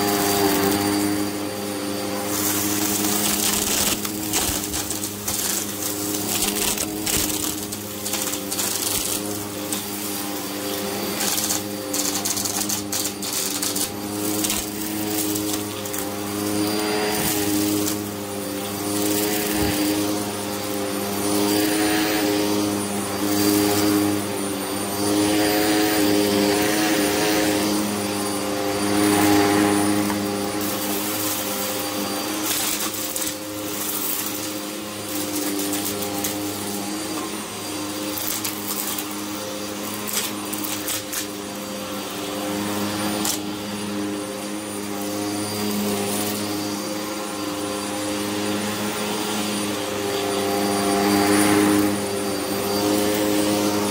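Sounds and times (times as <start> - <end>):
vacuum cleaner on carpet: 0.0 - 53.9
grit crackling in vacuum: 2.2 - 18.2.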